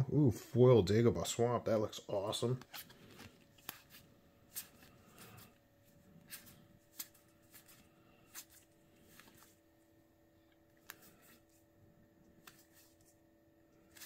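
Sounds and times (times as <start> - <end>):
cards flicking and sliding: 2.6 - 5.5, 6.2 - 9.6, 12.3 - 13.1, 13.8 - 14.0.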